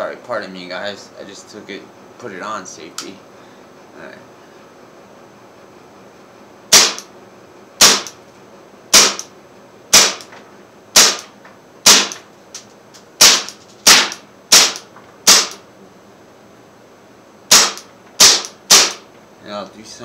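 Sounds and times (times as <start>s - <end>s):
air pistol shots: 6.7s - 7.1s, 7.8s - 8.2s, 8.9s - 9.3s, 9.9s - 10.3s, 10.9s - 12.2s, 13.2s - 15.6s, 17.5s - 19.1s.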